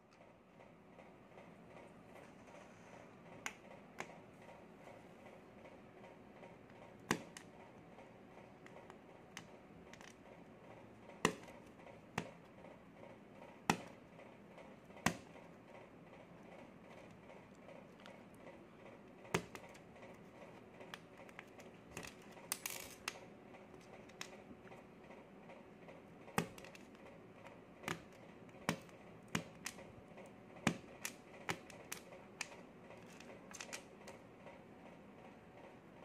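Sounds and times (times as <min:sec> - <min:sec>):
needle chipping candy clicks: 0:06.1 - 0:34.2.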